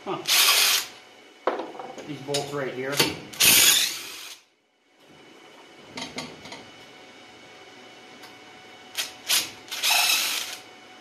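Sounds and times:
impact driver bursts: 0:03.4 - 0:04.4, 0:09.0 - 0:10.6.

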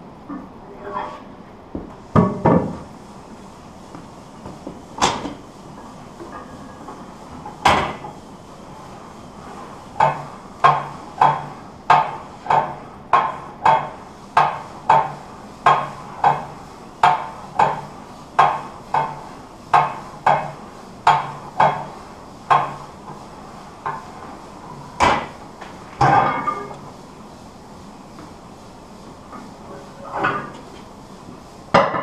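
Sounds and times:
weight plates clanking: 0:26.0 - 0:26.7.

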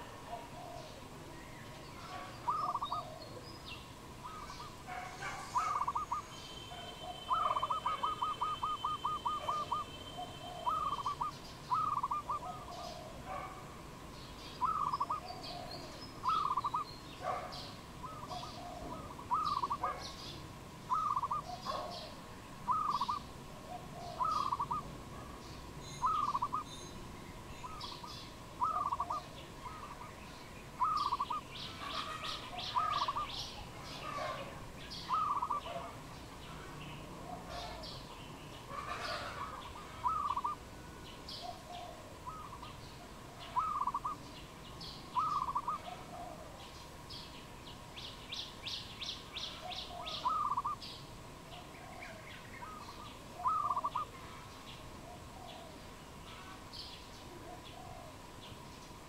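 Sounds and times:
dove calling: 0:00.0 - 0:13.7, 0:14.5 - 0:44.4, 0:45.0 - 0:46.8, 0:48.3 - 0:58.6
small birds chirping: 0:00.0 - 0:59.0
bird trills: 0:02.0 - 0:03.2, 0:04.2 - 0:13.1, 0:14.6 - 0:20.3, 0:20.9 - 0:22.1, 0:22.7 - 0:23.3, 0:24.0 - 0:24.9, 0:25.8 - 0:27.0, 0:27.6 - 0:35.9, 0:38.7 - 0:40.6, 0:43.4 - 0:44.2, 0:45.1 - 0:46.0, 0:48.4 - 0:50.9, 0:51.7 - 0:54.4.

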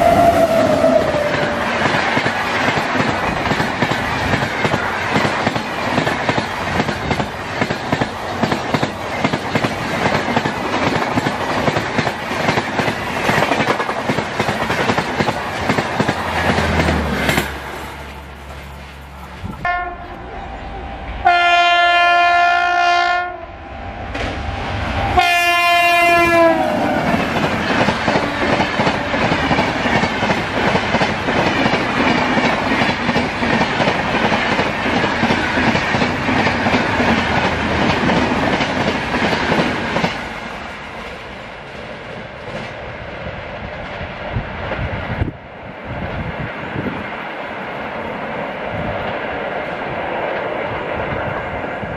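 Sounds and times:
train horn blasts: 0:00.0 - 0:01.7, 0:19.6 - 0:23.6, 0:25.1 - 0:27.2
train wheels clattering on rails: 0:00.1 - 0:19.6, 0:26.6 - 0:42.8.

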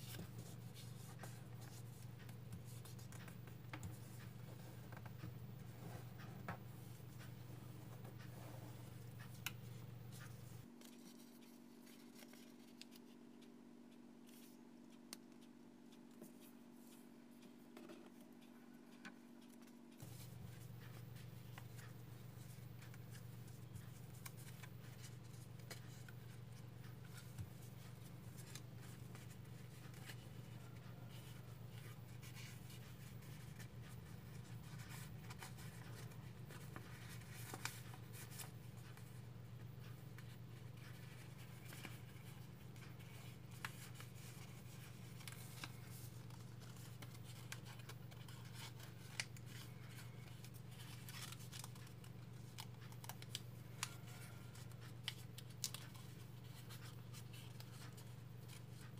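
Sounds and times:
paper rustling and crinkling: 0:40.2 - 0:58.9.

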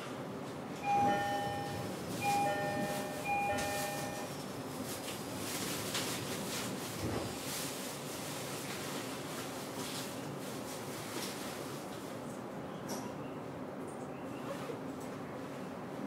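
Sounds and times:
train carriage background noise: 0:00.0 - 0:16.0
train door chime: 0:00.8 - 0:04.5.

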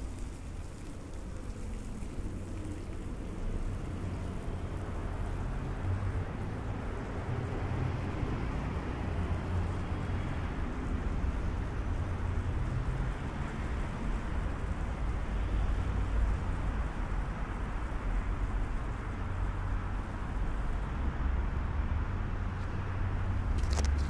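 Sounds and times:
road traffic rumble and hiss: 0:00.0 - 0:24.0.

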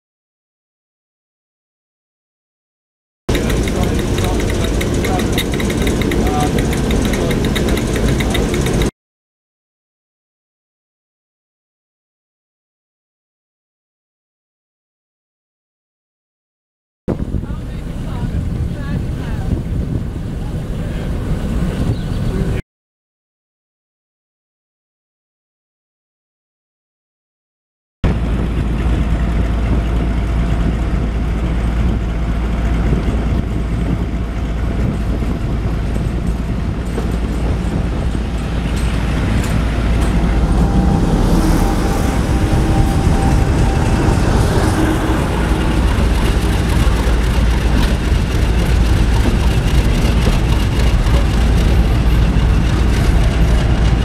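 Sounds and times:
diesel locomotives rumbling: 0:03.3 - 0:08.9, 0:17.1 - 0:22.6, 0:28.0 - 0:54.0.

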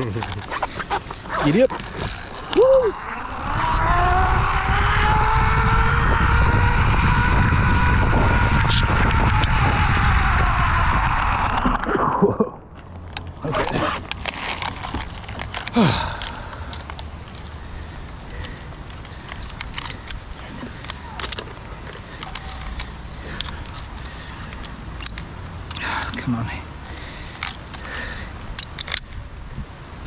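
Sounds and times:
clicks and scrapes: 0:00.0 - 0:02.7
wind rumble: 0:00.0 - 0:26.0
zipline pulley whining on cable: 0:01.2 - 0:11.8.

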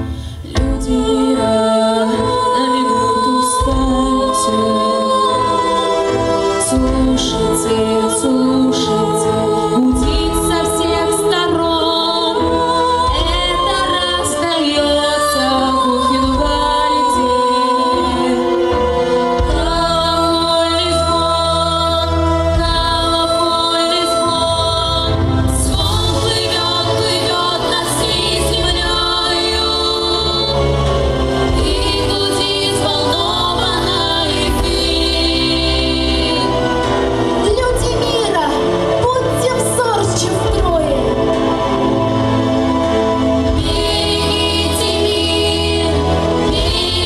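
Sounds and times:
orchestral backing track: 0:00.0 - 0:47.0
women singing a duet: 0:00.0 - 0:47.0.

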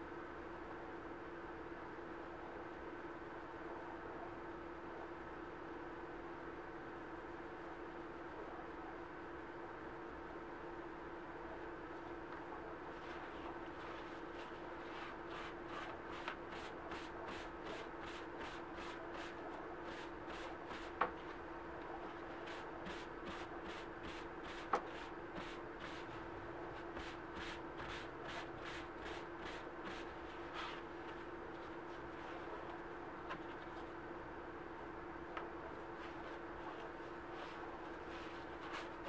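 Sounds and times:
steady background hum: 0:00.0 - 0:39.0
paper towel rubbing leather: 0:13.0 - 0:21.0, 0:26.8 - 0:31.2, 0:36.0 - 0:39.0.

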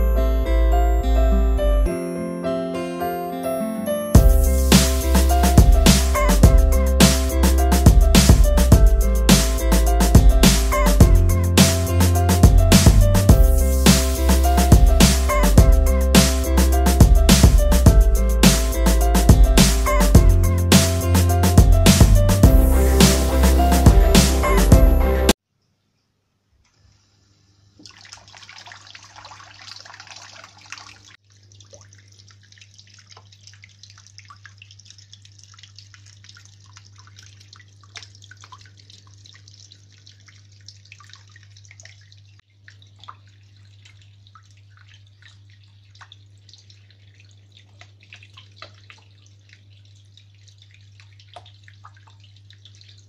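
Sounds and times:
water trickling and dripping: 0:04.2 - 0:24.7, 0:27.7 - 0:53.0
fountain pump humming: 0:04.2 - 0:25.3.

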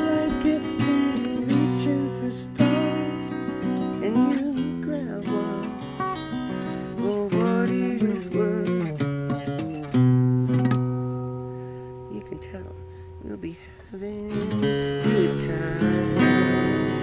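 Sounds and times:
acoustic guitar music: 0:00.0 - 0:17.0.

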